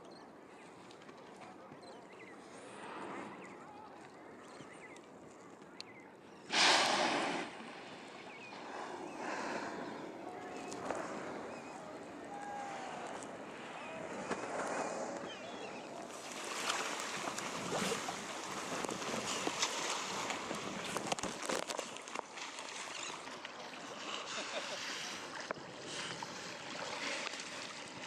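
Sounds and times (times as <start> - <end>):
sharp splashes of animals surfacing: 6.5 - 9.6
sea water sloshing: 6.5 - 28.0.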